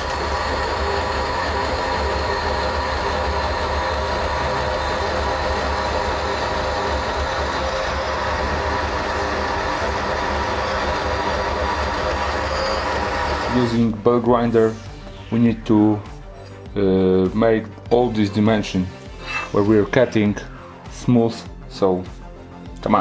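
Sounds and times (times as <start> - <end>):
band saw cutting aluminium: 0.0 - 13.9.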